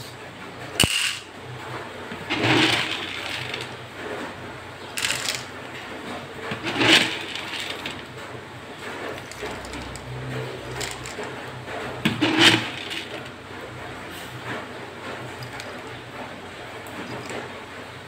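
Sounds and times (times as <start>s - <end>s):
kibble rattling into plastic scoop: 2.2s - 3.8s, 5.0s - 5.5s, 6.6s - 8.0s.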